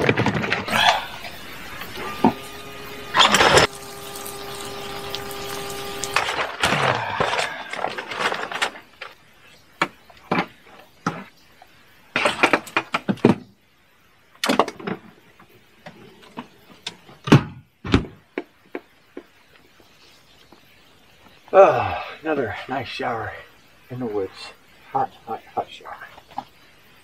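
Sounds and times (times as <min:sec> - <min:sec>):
knocks and clatters: 0:00.0 - 0:00.7
rustling of gear: 0:06.2 - 0:09.8.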